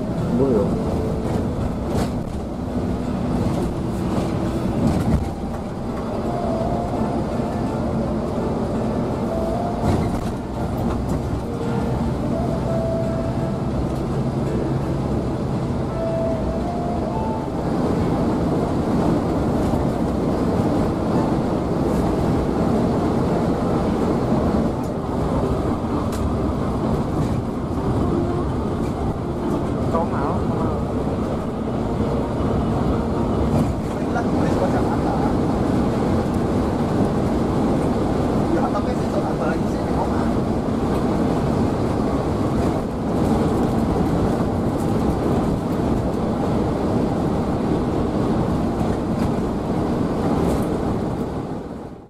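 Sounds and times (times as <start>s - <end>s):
road and engine rumble in coach: 0.0s - 52.0s.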